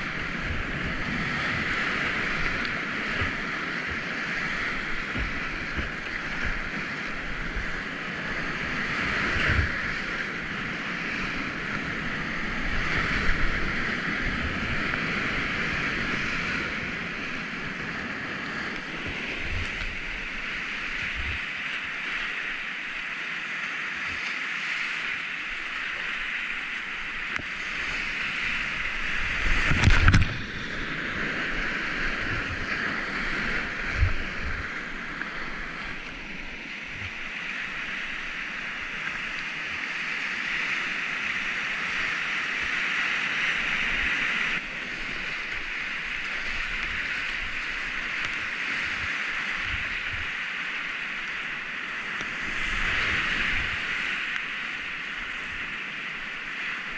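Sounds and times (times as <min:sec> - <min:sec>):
whitewater rushing: 0:00.0 - 0:56.9.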